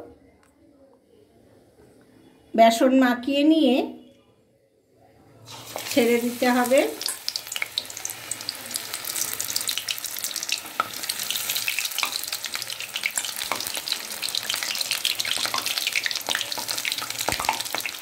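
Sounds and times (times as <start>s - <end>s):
fritters deep-frying with pops: 5.5s - 18.0s.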